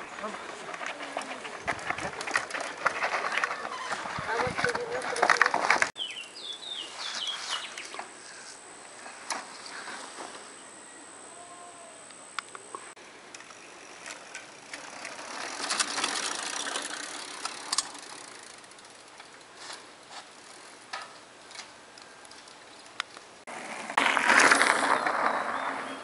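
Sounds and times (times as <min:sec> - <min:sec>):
bike clicks and rattles: 0:00.0 - 0:06.0, 0:13.3 - 0:23.4
bike tyres crunching on gravel: 0:00.0 - 0:10.6, 0:13.4 - 0:22.8, 0:23.4 - 0:26.0.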